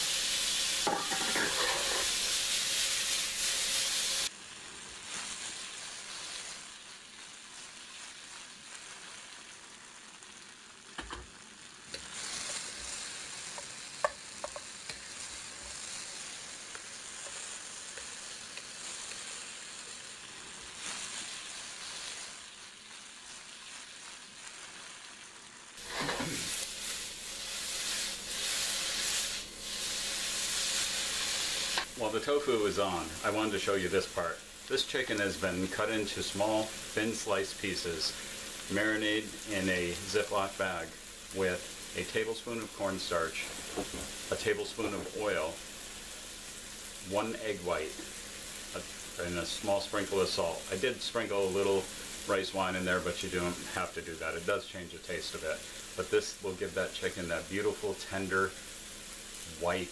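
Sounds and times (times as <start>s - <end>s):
tofu sizzling in hot oil: 0.0s - 59.9s.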